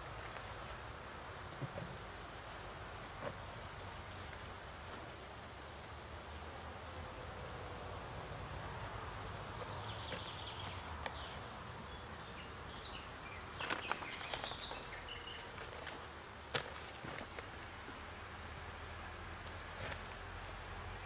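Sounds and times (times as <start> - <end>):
outdoor background noise: 0.0 - 21.0
birds chirping: 9.1 - 16.1.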